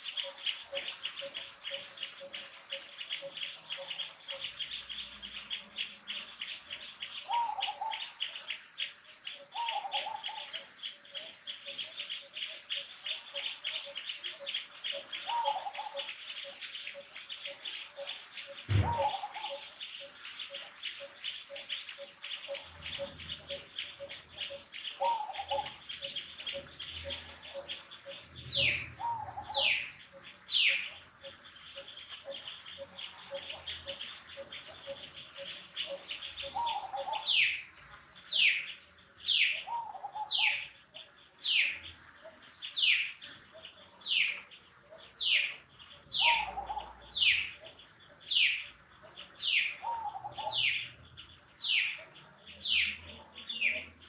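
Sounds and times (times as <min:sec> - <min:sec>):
bird call: 0:09.4 - 0:37.6, 0:41.5 - 0:50.9
sharp knock: 0:18.7 - 0:19.1.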